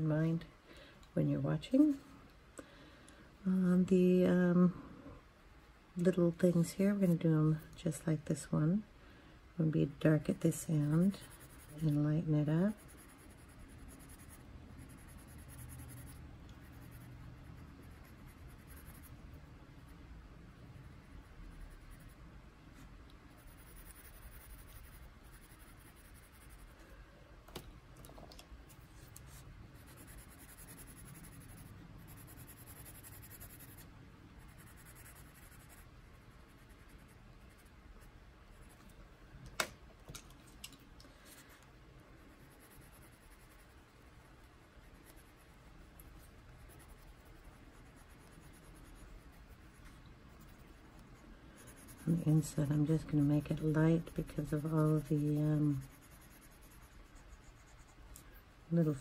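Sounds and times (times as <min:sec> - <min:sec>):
pencil scratching on paper: 0:10.0 - 0:19.2, 0:23.3 - 0:26.7, 0:28.7 - 0:37.8, 0:42.4 - 0:44.2, 0:44.8 - 0:58.0.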